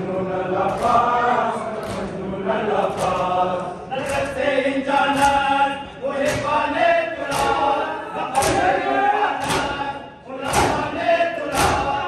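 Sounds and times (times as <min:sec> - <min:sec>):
men chanting in unison: 0:00.0 - 0:12.0
hands slapping bare chests: 0:10.5 - 0:10.8, 0:11.5 - 0:11.9.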